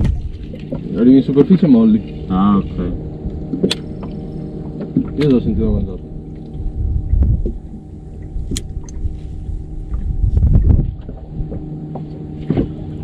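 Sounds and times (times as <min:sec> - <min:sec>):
steady low hum: 0:00.0 - 0:13.0
wind buffeting microphone: 0:00.0 - 0:13.0.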